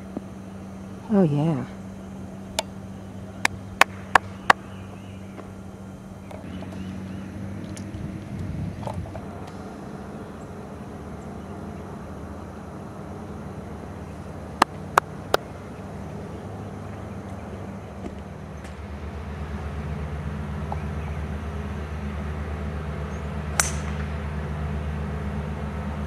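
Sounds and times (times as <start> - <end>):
low outdoor rumble: 0.0 - 26.0
golf club striking ball: 23.5 - 24.2.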